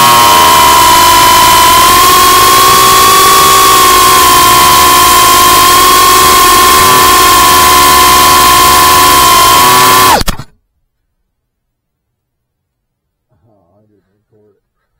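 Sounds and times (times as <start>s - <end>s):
drone motors whining: 0.0s - 10.5s.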